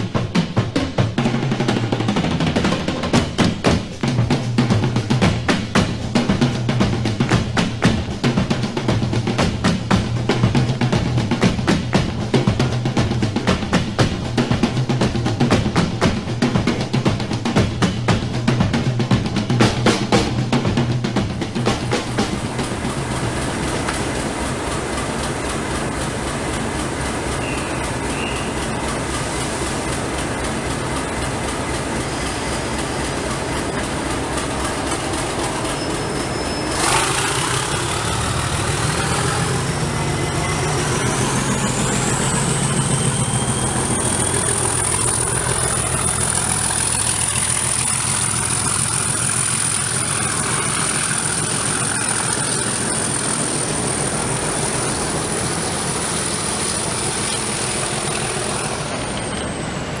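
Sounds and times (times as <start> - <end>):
diesel locomotive engine running: 0.0 - 60.0
turbocharger whistle: 27.3 - 29.6, 34.5 - 60.0.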